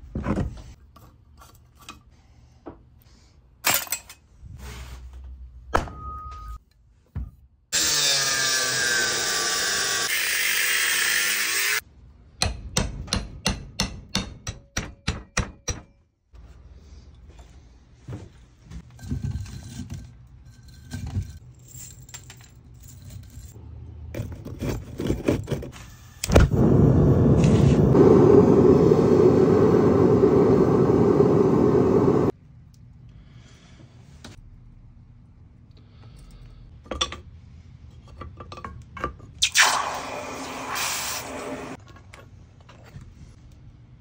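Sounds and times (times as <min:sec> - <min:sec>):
furnace roaring: 0:07.7 - 0:11.8, 0:23.5 - 0:36.8, 0:39.4 - 0:44.0.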